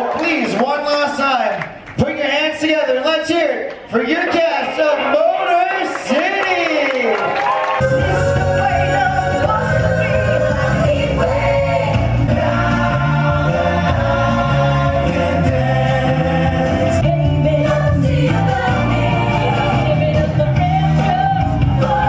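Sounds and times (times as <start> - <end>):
bass line: 7.8 - 22.0.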